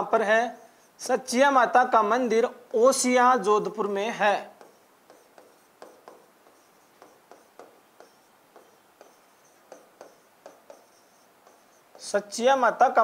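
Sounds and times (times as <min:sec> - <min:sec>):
marker squeaking on whiteboard: 0:00.1 - 0:13.0.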